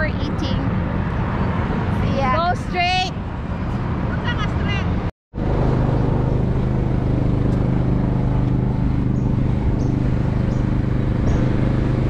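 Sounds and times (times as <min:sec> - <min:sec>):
city street traffic: 0:00.0 - 0:12.0
car engine idling: 0:05.4 - 0:12.0.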